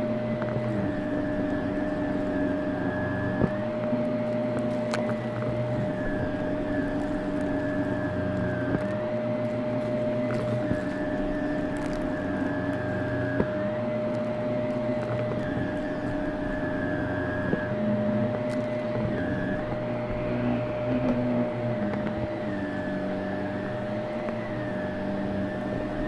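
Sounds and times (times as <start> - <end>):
vacuum cleaner motor whine: 0.0 - 26.0
debris clicking in vacuum: 3.3 - 16.3.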